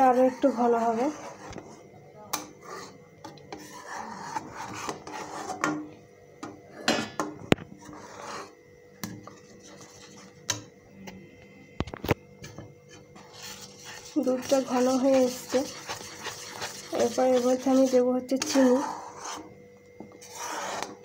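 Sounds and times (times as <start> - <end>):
spatula scraping metal pan: 0.0 - 1.8, 2.6 - 5.8, 7.8 - 8.6, 12.9 - 19.5, 20.2 - 21.0.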